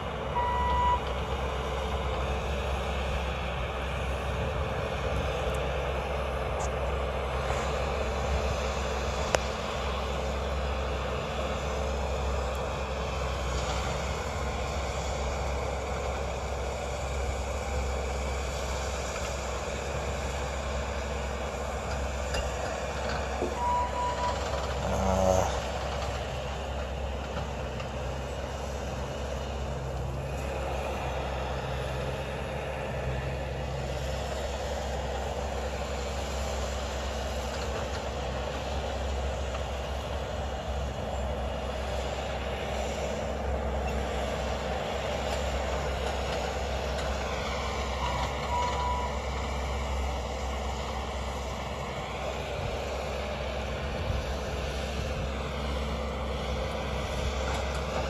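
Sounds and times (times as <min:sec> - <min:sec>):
diesel engine running: 0:00.0 - 0:58.0
short beep: 0:00.4 - 0:01.0, 0:23.5 - 0:24.4.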